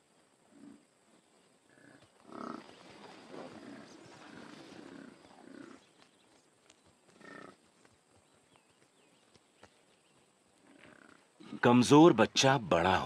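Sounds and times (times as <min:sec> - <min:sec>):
large wild animal calls: 0:01.7 - 0:06.0, 0:07.1 - 0:07.6, 0:10.6 - 0:11.6.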